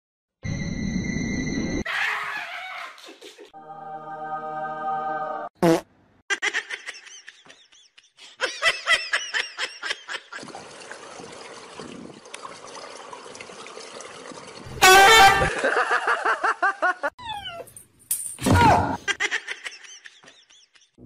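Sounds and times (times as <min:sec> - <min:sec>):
swimming pool water washing: 0:09.8 - 0:15.8.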